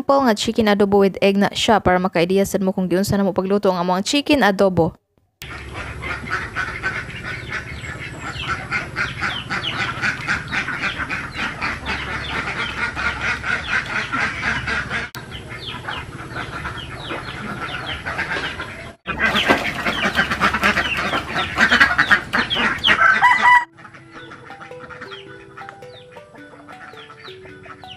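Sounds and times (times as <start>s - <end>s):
ducks quacking: 5.4s - 27.9s.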